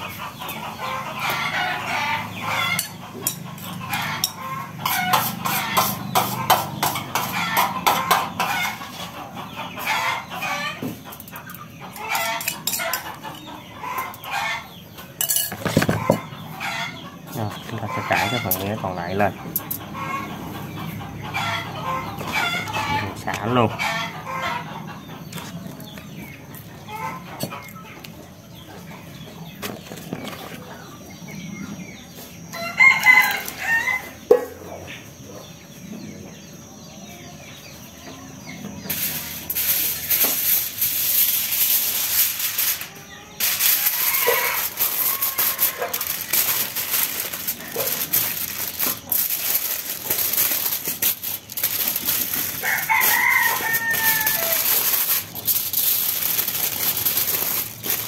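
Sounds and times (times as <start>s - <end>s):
rooster crowing: 32.5s - 34.2s, 42.8s - 55.3s
foil crinkling: 38.9s - 58.0s.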